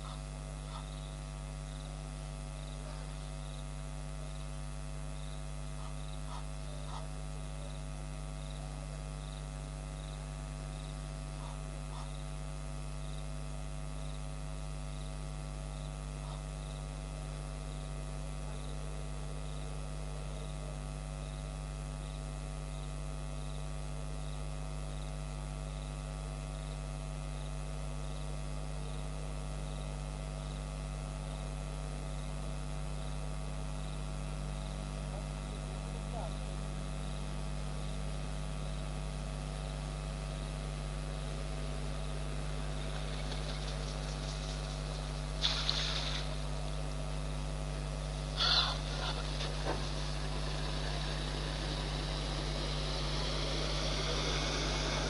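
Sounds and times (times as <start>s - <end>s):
electrical mains hum: 0.0s - 55.0s
faint brief calls: 48.3s - 52.0s.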